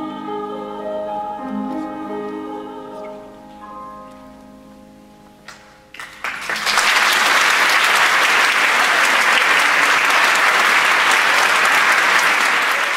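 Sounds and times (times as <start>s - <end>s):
audience applause: 5.9s - 12.9s.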